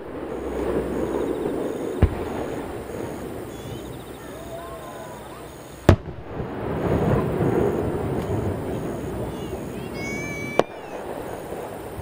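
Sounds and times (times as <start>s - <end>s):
firework bang: 0.0s - 12.0s
faint voices: 0.2s - 6.0s, 6.8s - 12.0s.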